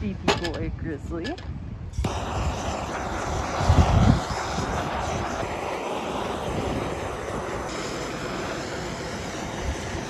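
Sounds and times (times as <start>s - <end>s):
propane torch hissing: 2.0s - 10.0s.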